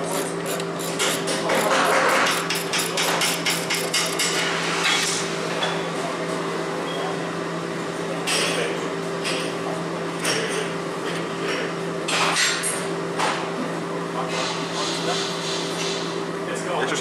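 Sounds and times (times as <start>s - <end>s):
wrench clinking against bolts: 0.0s - 4.4s.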